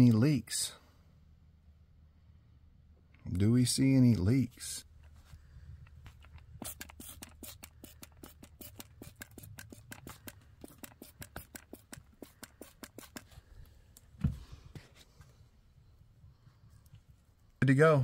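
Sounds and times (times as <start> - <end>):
small sharp clicks and ticks: 5.8 - 13.3.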